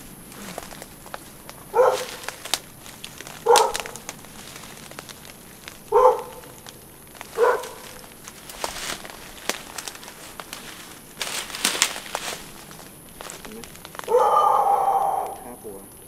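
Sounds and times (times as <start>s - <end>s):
dog barking: 1.7s - 2.4s, 3.4s - 4.0s, 5.9s - 6.6s, 7.3s - 8.0s, 14.1s - 15.4s.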